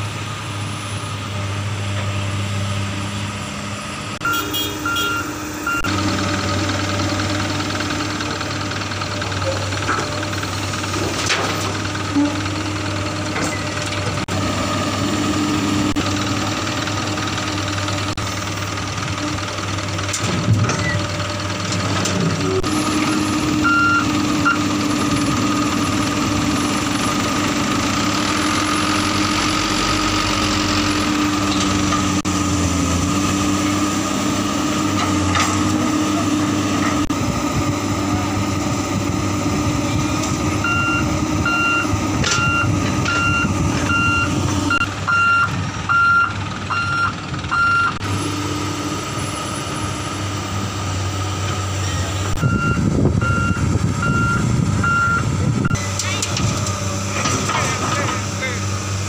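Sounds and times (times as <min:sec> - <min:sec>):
excavator diesel engine running: 0:00.0 - 0:59.0
back-up alarm beeping: 0:04.2 - 0:06.0, 0:23.6 - 0:24.7, 0:40.6 - 0:48.0, 0:52.4 - 0:55.8.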